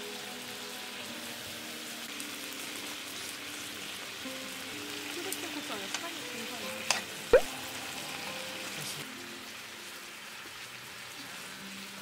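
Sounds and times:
meat sizzling in a frying pan: 0.0 - 12.0
metal tongs clicking on pan: 6.8 - 7.1.

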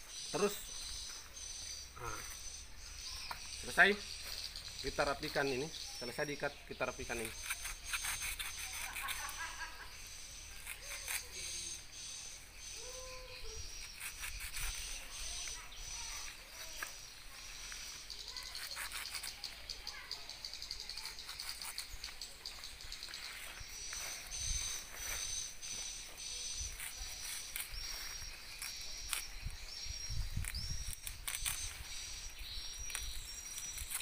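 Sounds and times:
bird chirps: 0.0 - 34.0
high-pitched insect drone: 0.1 - 33.4
fibre rustling and knife clicks: 6.9 - 9.5, 10.5 - 11.7, 18.3 - 19.6, 26.4 - 29.5, 30.4 - 32.0, 32.7 - 34.0.

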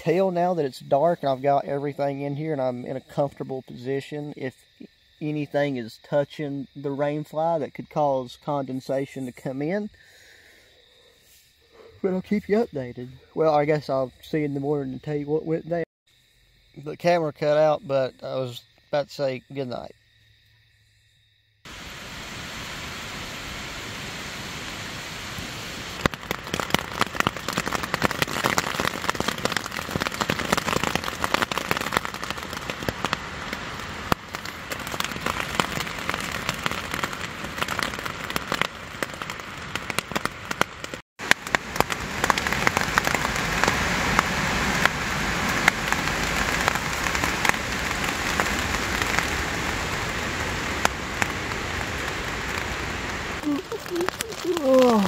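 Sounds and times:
rain pattering on fabric: 21.7 - 55.0.

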